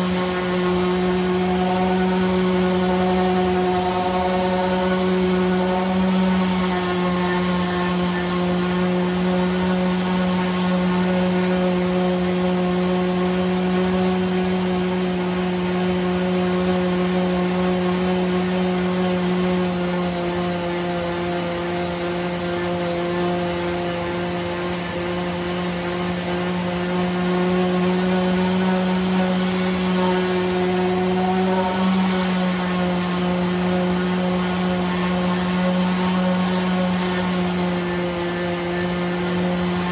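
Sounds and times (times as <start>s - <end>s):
orbital sander on wood: 0.0s - 39.9s.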